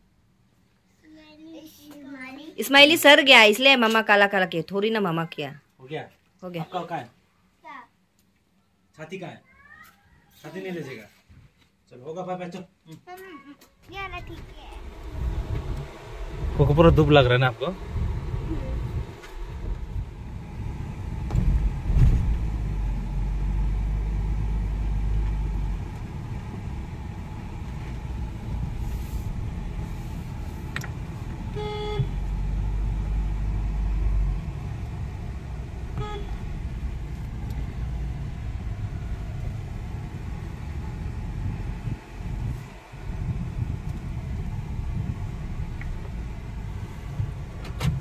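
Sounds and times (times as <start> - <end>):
road noise: 1.1 - 5.5, 13.7 - 48.0
car engine: 13.8 - 48.0
car horn toot: 31.4 - 32.3, 35.9 - 36.6.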